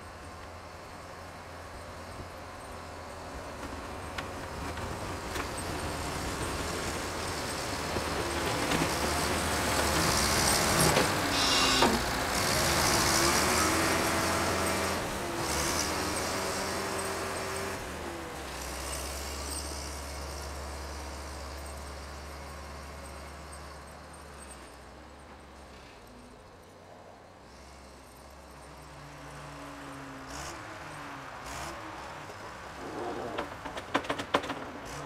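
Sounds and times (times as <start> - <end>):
wheel loader engine passing: 3.2 - 21.4.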